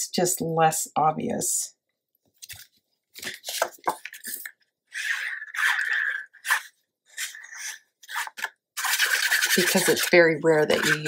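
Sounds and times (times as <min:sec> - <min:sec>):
paper rustling and scraping: 0:02.4 - 0:11.0
glue bottle tip rubbing paper: 0:04.9 - 0:11.0.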